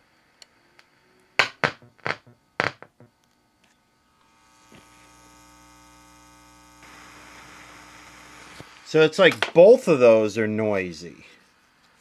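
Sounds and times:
speaker hum with hiss: 0.0s - 12.0s
sharp pops from speaker: 1.4s - 3.1s.

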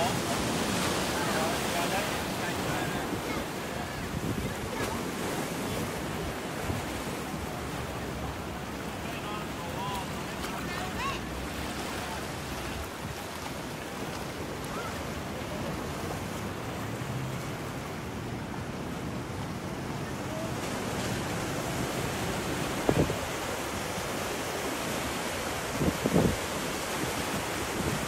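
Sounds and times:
ocean surf over rocks: 0.0s - 28.0s
wind on microphone: 2.9s - 7.0s, 20.8s - 28.0s.

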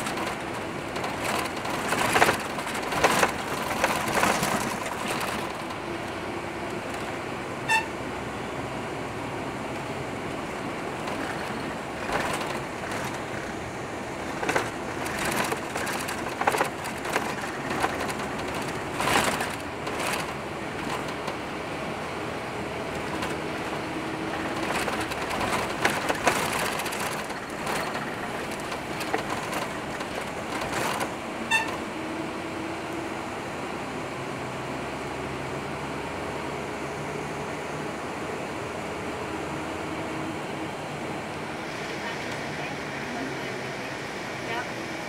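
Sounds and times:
rattles and knocks: 0.0s - 5.8s, 11.0s - 21.4s, 22.9s - 31.8s
vehicle engine and road noise: 0.0s - 45.0s
brief high ringing tone: 7.6s - 8.0s.

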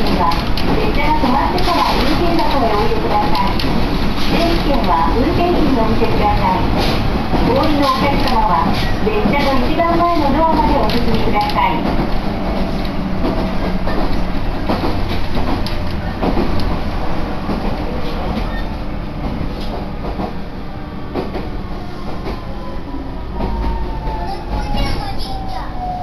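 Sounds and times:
wheels clicking over rail joints: 0.0s - 16.8s
train rumble: 0.0s - 26.0s.

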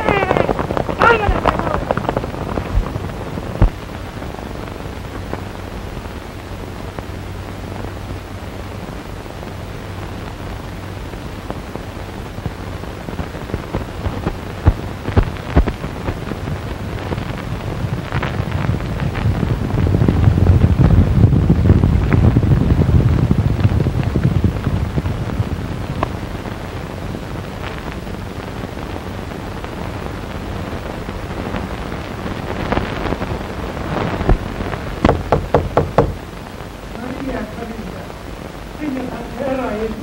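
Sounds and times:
horses galloping: 0.0s - 3.9s, 34.3s - 36.3s
sharp cracks: 0.0s - 4.4s, 33.9s - 36.5s
film soundtrack hiss and hum: 0.0s - 40.0s.

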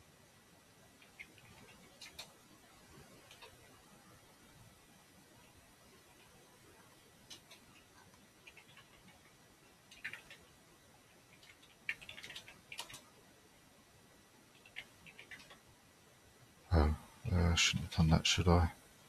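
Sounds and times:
typing on computer keyboard: 1.0s - 2.4s, 7.2s - 10.6s, 11.3s - 13.2s, 14.5s - 15.6s.

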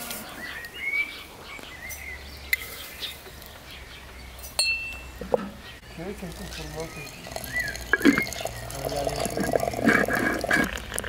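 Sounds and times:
birds chirping: 0.0s - 11.0s
ringing metal ping: 4.6s - 5.2s.

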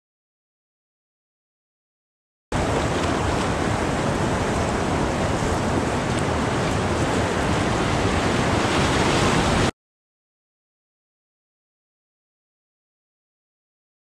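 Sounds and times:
rushing whitewater: 2.6s - 9.7s.

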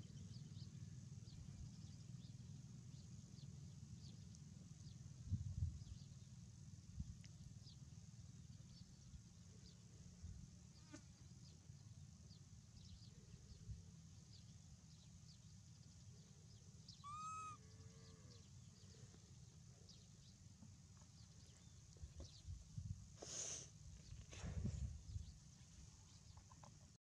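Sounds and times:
faint high chirps: 15.9s - 19.1s
baby monkey cooing: 17.0s - 17.6s.

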